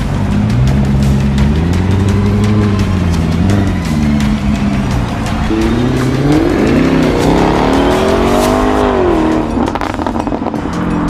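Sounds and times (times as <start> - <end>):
exhaust crackles and pops: 6.8 - 10.6.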